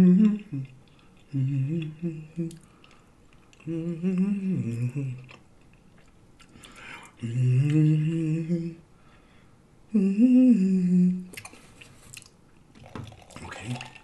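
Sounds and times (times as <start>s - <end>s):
man humming: 0.0s - 2.6s, 3.6s - 5.4s, 7.1s - 8.8s, 9.9s - 11.4s.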